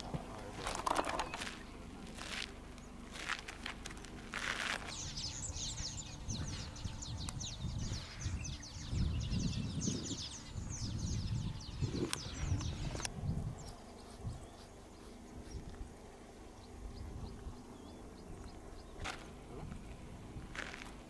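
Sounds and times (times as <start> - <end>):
footsteps crunching on dirt: 0.0 - 6.8, 18.3 - 21.0
birds chirping: 0.0 - 21.0.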